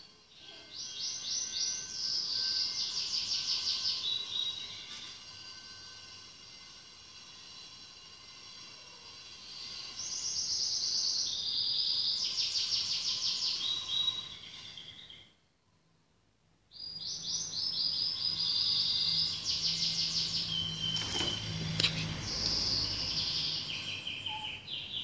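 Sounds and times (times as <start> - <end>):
bird singing trills: 0.0 - 15.4, 16.7 - 25.0.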